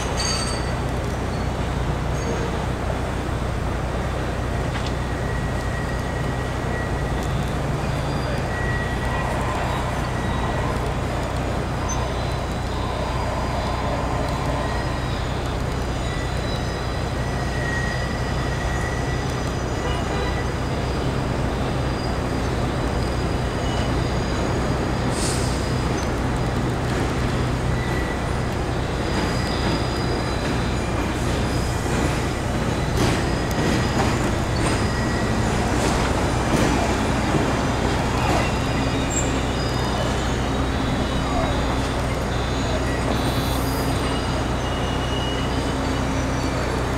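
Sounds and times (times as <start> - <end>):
train wheels rumbling on track: 0.0 - 46.9
faint high squealing: 36.8 - 46.8.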